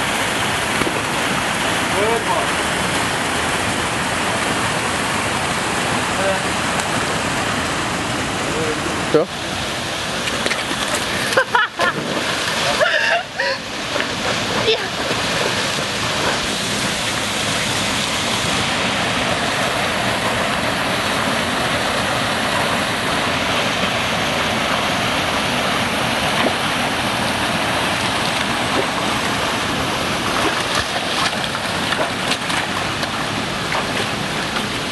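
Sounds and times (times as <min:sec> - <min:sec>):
waterfall rushing into a pool: 0:00.0 - 0:34.9
dog swimming splashes: 0:13.8 - 0:34.9.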